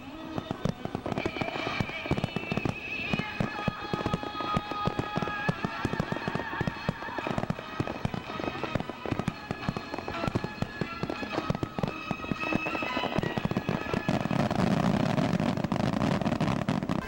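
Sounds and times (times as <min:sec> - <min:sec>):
fireworks crackling and popping: 0:00.0 - 0:17.0.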